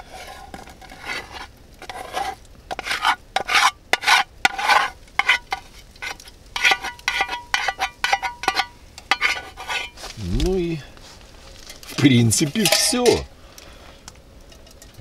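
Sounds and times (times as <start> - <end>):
spatula scraping metal frying pan: 0.0 - 10.1.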